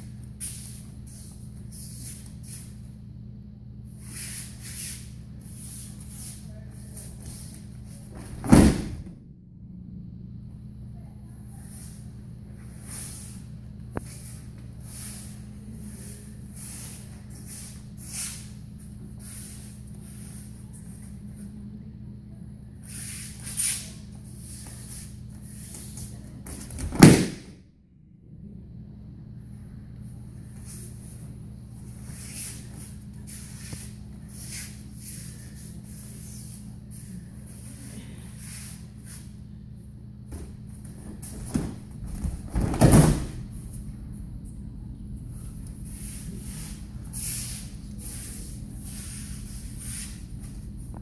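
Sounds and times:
body slapping onto mats: 8.1s - 9.2s, 26.4s - 27.6s, 40.3s - 43.4s
breakfall slap: 26.6s - 27.6s.

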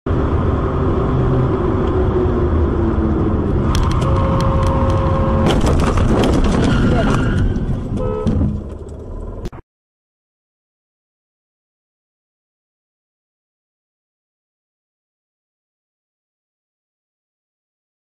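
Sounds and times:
road and engine noise inside car: 0.1s - 9.5s
car horn: 3.9s - 5.5s, 6.9s - 8.6s
sharp knocks and clatters: 5.4s - 9.0s.

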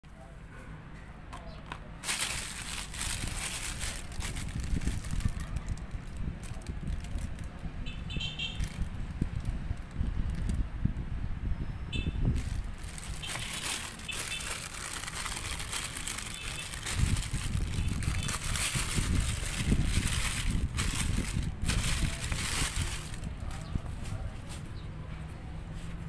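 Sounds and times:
plastic bag crinkling: 2.0s - 7.6s, 8.6s - 10.5s, 12.4s - 23.6s
steady low rumble: 2.0s - 7.8s, 12.2s - 24.3s.

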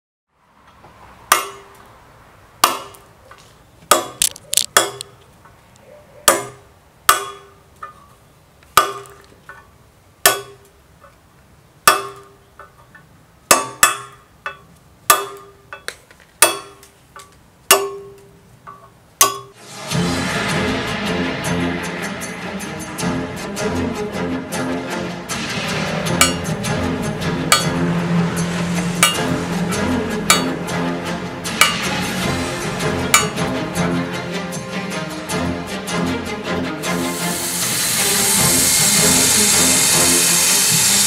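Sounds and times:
hammer striking chisel: 1.3s - 1.8s, 2.6s - 3.1s, 3.9s - 5.2s, 6.3s - 8.1s, 8.8s - 9.6s, 10.3s - 10.7s, 11.8s - 12.8s, 13.5s - 19.6s, 27.5s - 27.8s, 28.6s - 30.7s, 31.4s - 32.0s, 33.1s - 33.5s.

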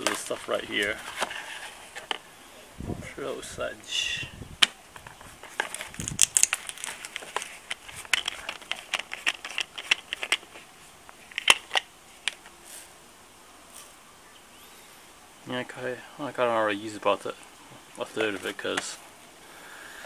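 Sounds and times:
plastic bottle cap clicks and crinkles: 4.6s - 12.5s.

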